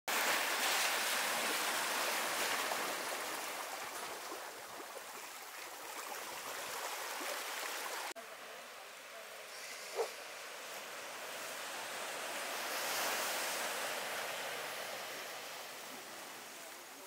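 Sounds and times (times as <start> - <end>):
seawater washing over rocks: 0.1 - 8.2.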